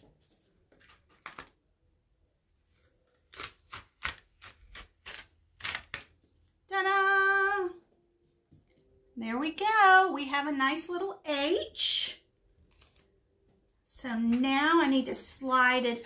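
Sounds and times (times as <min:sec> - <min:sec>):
adhesive stencil ripping off: 0:03.1 - 0:06.2, 0:12.6 - 0:13.1.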